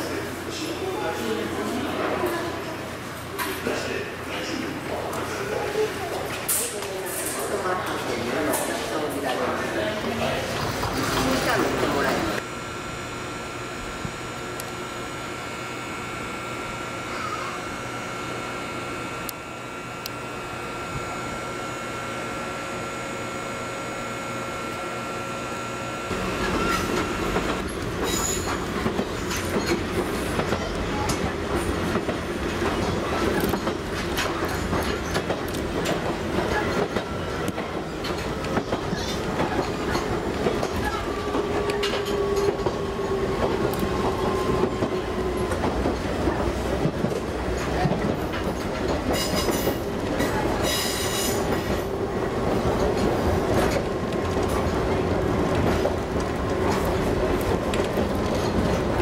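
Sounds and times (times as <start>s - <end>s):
standing electric train hum: 0.0s - 59.0s
train motor whine: 10.8s - 59.0s
train wheels clacking over rail joints: 26.4s - 51.9s.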